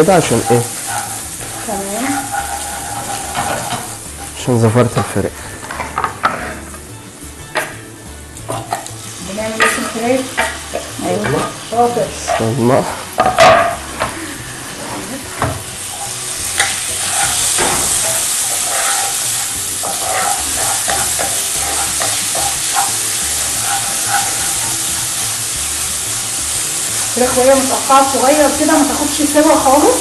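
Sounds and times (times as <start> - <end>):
chicken sizzling in a frying pan: 0.0 - 6.8, 7.6 - 30.0
spatula scraping and tapping pan: 0.1 - 6.8, 8.4 - 11.6, 14.9 - 25.3.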